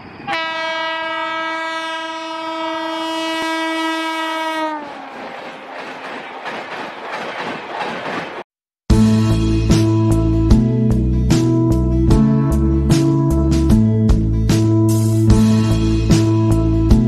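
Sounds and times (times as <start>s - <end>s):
train passing: 0.0s - 10.3s
locomotive horn blast: 0.3s - 5.1s.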